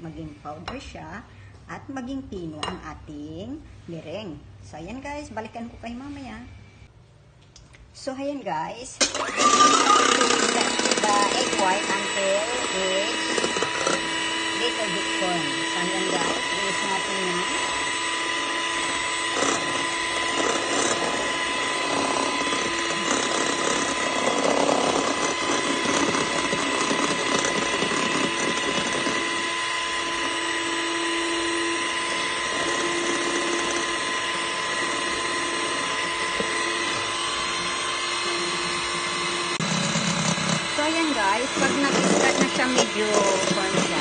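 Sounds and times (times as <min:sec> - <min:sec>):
electric hand mixer whining: 0:09.0 - 0:44.0.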